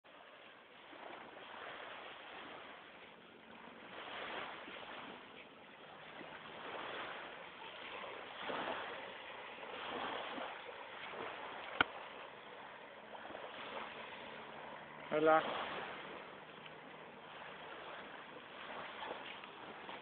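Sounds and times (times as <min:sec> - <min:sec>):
waves lapping on shingle: 0:00.1 - 0:20.0.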